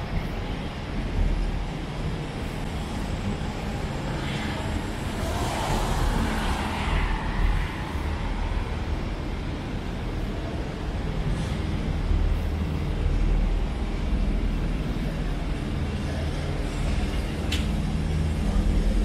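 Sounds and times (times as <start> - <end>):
rumble of cars: 0.0 - 19.0
vehicle passing close: 4.4 - 9.8.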